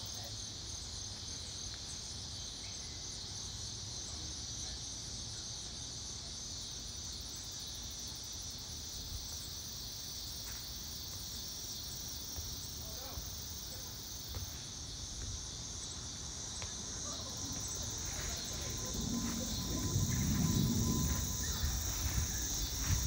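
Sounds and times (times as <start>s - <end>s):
insects buzzing: 0.0s - 23.0s
faint low rumble: 16.6s - 23.0s.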